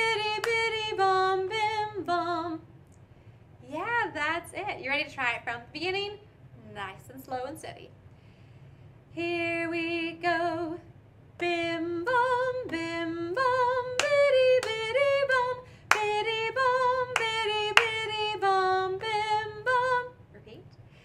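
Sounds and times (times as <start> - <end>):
woman singing unaccompanied: 0.0 - 2.7, 9.2 - 20.2
sharp hand claps: 14.0 - 14.8, 15.9 - 16.2, 17.2 - 18.0.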